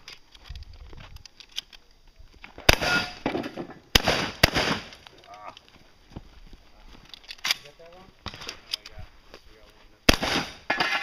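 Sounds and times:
shotgun shots with echo: 2.7s - 4.9s, 10.1s - 11.0s.

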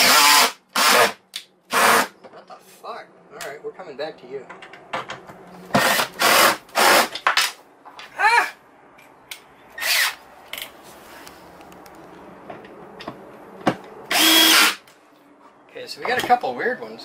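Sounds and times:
cordless power driver bursts: 14.1s - 14.8s.

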